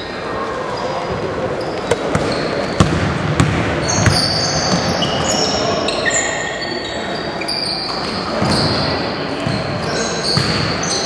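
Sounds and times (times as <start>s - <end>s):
sneakers squeaking on court: 0.8s - 11.0s
basketball bouncing on hardwood floor: 2.1s - 4.9s, 10.4s - 10.7s.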